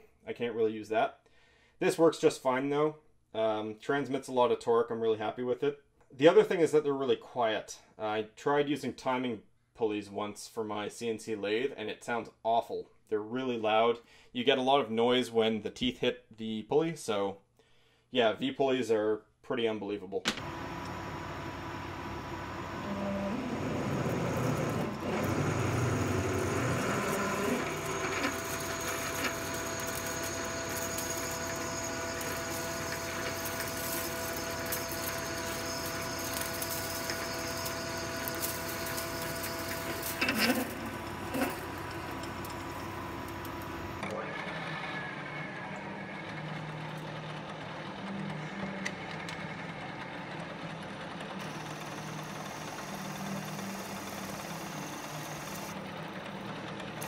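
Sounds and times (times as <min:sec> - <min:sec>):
milling machine cutting metal: 0:20.4 - 0:46.5, 0:51.4 - 0:57.0
lathe drilling metal: 0:20.4 - 0:46.8, 0:51.4 - 0:57.0.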